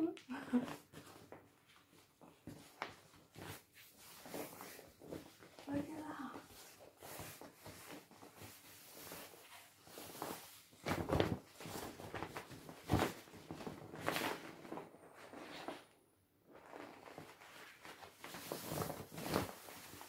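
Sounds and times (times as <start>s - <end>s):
plastic rubbing: 16.6s - 20.0s.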